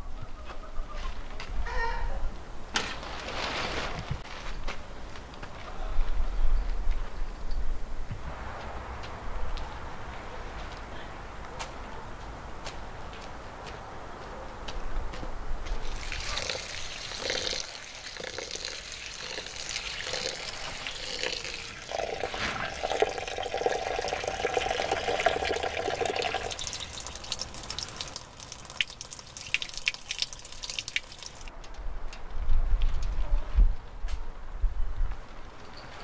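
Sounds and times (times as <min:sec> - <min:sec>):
tap water running into bowl: 0:15.8 - 0:31.5.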